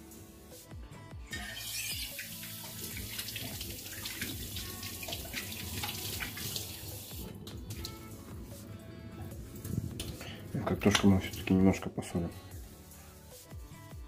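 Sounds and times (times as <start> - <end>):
water splashing: 1.6 - 8.0.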